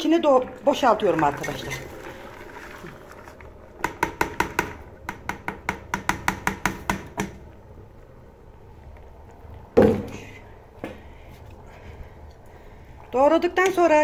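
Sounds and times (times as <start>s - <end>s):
utensil tapping on cutting board: 3.8s - 7.4s.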